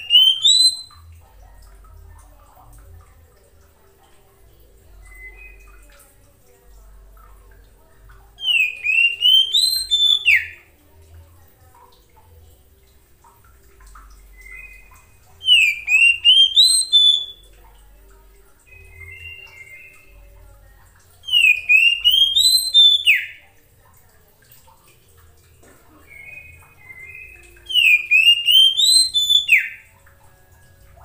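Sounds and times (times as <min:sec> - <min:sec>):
bird singing whistled notes: 0:00.0 - 0:01.1, 0:05.0 - 0:06.0, 0:08.4 - 0:10.6, 0:14.3 - 0:17.5, 0:18.6 - 0:20.4, 0:21.2 - 0:23.4, 0:26.0 - 0:29.9.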